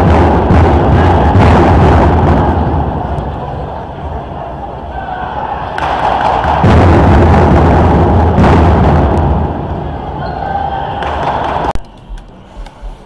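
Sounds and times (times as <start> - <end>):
taiko drum ensemble playing: 0.0 - 3.1, 5.8 - 9.7.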